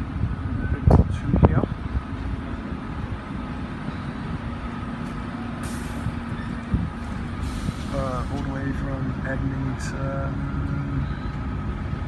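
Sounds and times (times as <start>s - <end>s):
bus engines idling: 0.0s - 12.0s
pneumatic air hiss: 5.6s - 6.2s, 7.4s - 8.4s.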